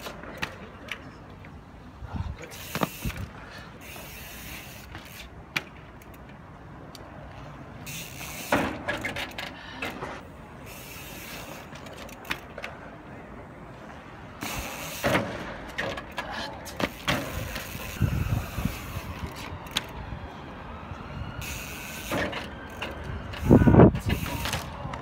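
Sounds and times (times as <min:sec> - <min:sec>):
bicycle freewheel ticking: 0:07.8 - 0:08.6, 0:10.6 - 0:11.8, 0:16.9 - 0:19.8, 0:21.4 - 0:22.8.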